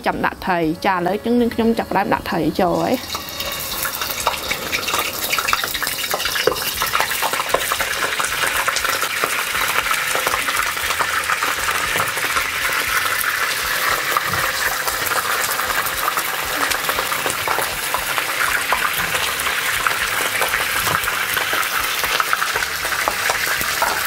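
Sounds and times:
fish sizzling in hot oil: 0:00.7 - 0:24.0.

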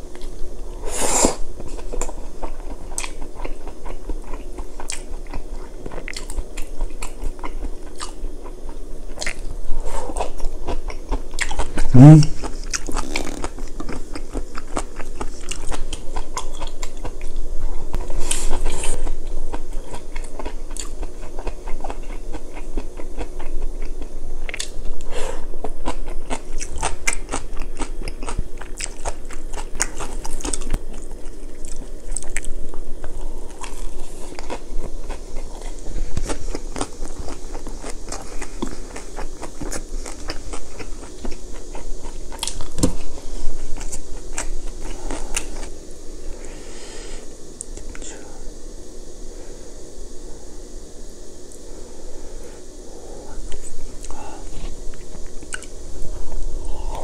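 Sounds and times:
chewing and crunching food: 0:00.0 - 0:45.8, 0:52.6 - 0:57.0
wet mouth sounds: 0:11.4 - 0:14.0.

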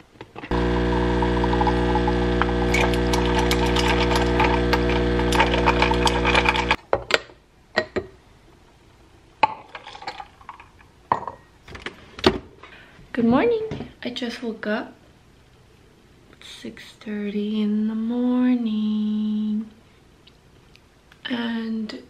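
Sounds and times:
espresso machine pump buzzing: 0:00.5 - 0:06.8.

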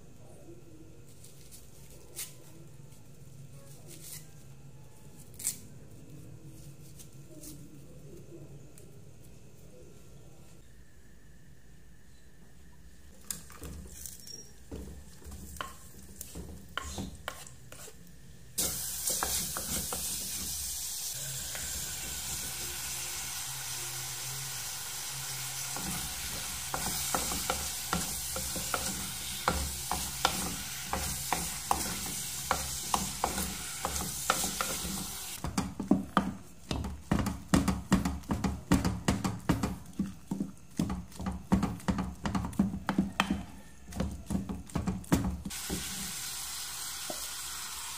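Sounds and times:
wooden spoon stirring: 0:13.3 - 0:18.2, 0:25.8 - 0:45.9
food sizzling in a pot: 0:13.6 - 0:47.9
spatula scraping a steel pot: 0:15.2 - 0:18.0.

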